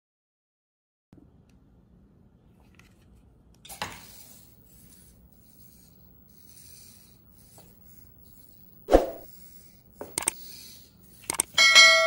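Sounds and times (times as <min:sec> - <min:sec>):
robot leg servos rasping: 0:10.0 - 0:10.4, 0:11.1 - 0:11.6.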